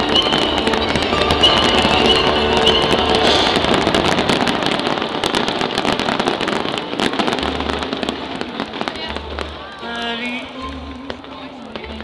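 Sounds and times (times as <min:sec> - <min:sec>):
fireworks cracking and popping: 0:00.0 - 0:12.0.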